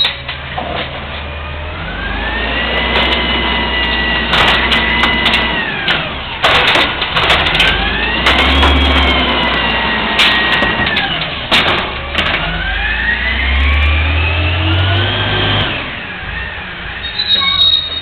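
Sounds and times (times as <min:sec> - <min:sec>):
trash cart knocking and banging: 0:00.0 - 0:01.6, 0:02.7 - 0:12.8
garbage truck engine revving: 0:00.0 - 0:18.0
hydraulic whine: 0:01.4 - 0:18.0.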